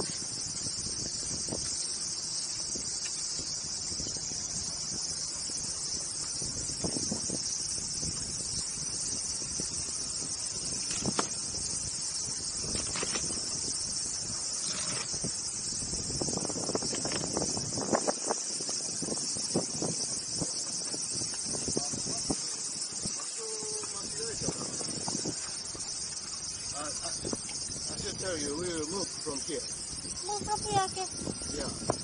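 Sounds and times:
high-pitched insect chorus: 0.0s - 32.0s.

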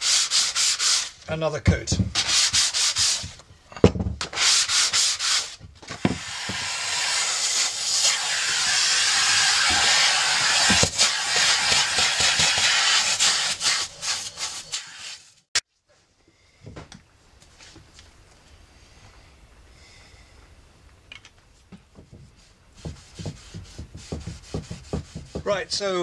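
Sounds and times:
sandpaper rubbing on wood: 0.0s - 1.2s, 2.2s - 3.4s, 4.3s - 15.5s, 22.3s - 25.6s
vacuum cleaner nozzle hissing: 5.9s - 15.4s.

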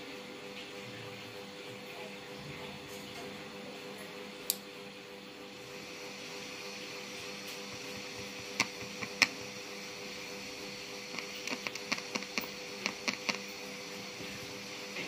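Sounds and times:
steady hum: 0.0s - 15.0s
fingers tapping circuit board: 8.4s - 9.4s, 11.1s - 13.4s.

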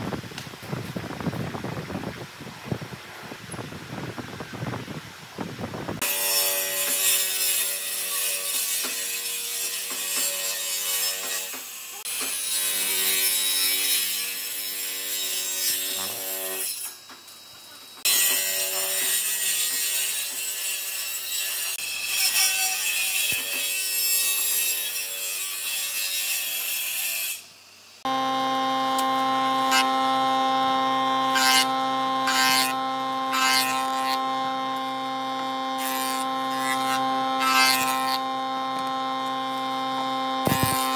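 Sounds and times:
table saw ripping timber: 6.0s - 16.9s, 18.0s - 27.4s, 28.0s - 40.9s
jointer humming: 28.0s - 40.9s.

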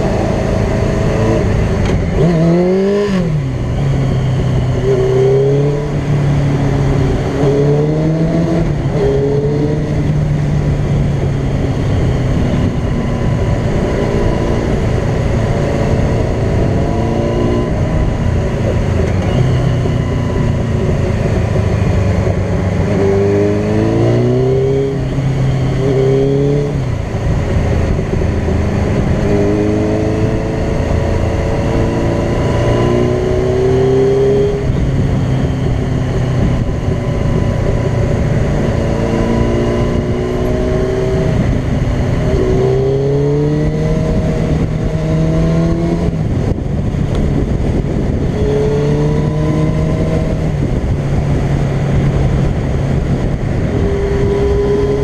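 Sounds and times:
motorcycle engine revving: 0.0s - 55.0s
wind and road noise: 0.0s - 55.0s.

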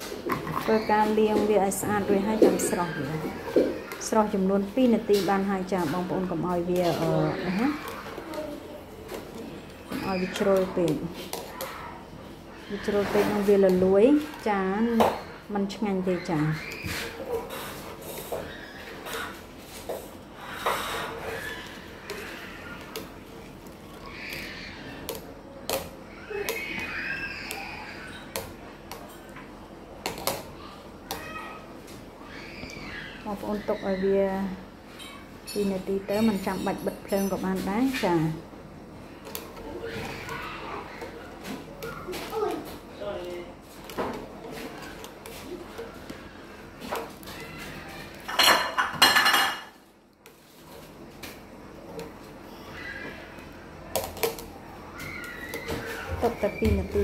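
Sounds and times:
skimmer scraping steel pot: 0.0s - 8.4s, 9.0s - 12.0s, 12.6s - 29.3s.

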